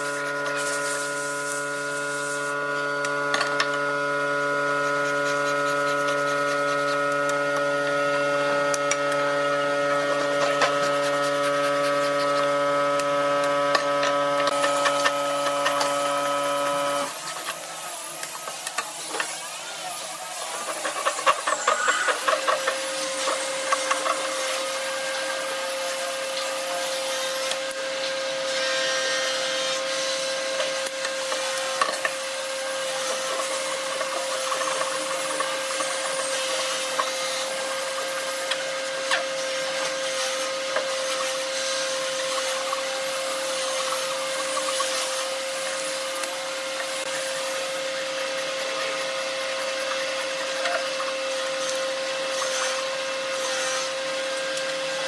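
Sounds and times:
steady machine hum: 0.0 - 18.8
hand saw cutting wood: 0.0 - 55.0.

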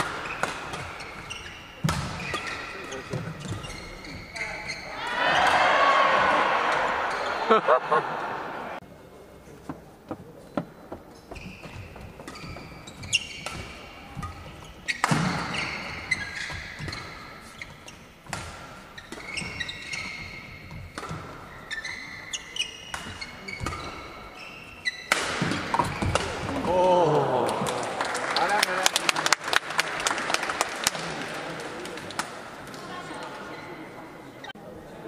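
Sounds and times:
rackets striking shuttlecock: 0.0 - 1.2
shoes squeaking on court: 0.0 - 5.8, 10.2 - 26.5
spectators reacting: 4.9 - 8.8, 26.6 - 28.8.

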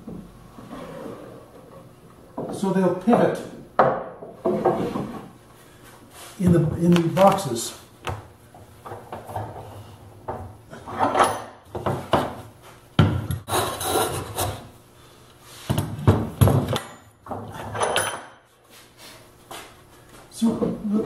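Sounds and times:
wood scraping and knocking: 4.2 - 5.4.

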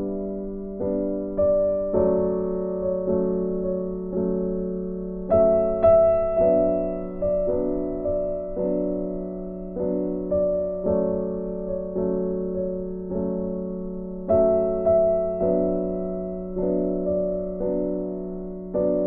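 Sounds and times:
slow gentle piano music: 0.0 - 19.0.

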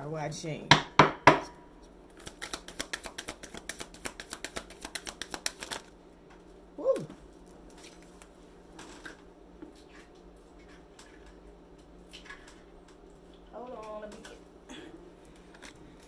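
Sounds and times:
playing cards shuffling: 2.2 - 5.9.

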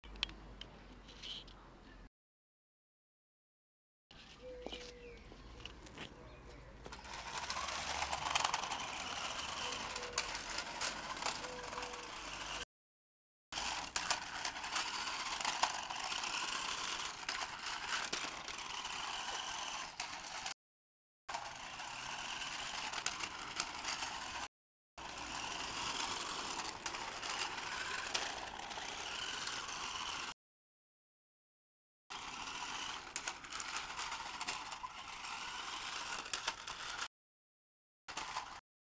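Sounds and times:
electric motor whirring: 6.9 - 12.6, 13.6 - 20.6, 21.3 - 30.3, 32.1 - 37.1
plastic wheels rattling over bricks: 6.9 - 12.6, 13.6 - 20.6, 21.3 - 30.3, 32.1 - 37.1.

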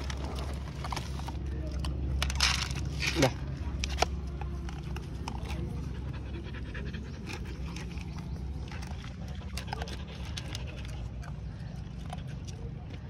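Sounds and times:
dog chewing dry kibble: 0.0 - 13.0
dog panting: 5.2 - 13.0.

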